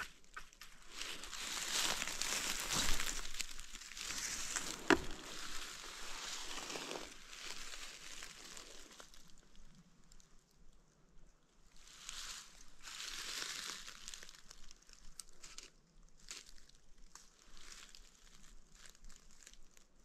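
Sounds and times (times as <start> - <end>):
dry leaves rustling and crunching: 0.2 - 9.7, 11.8 - 19.8.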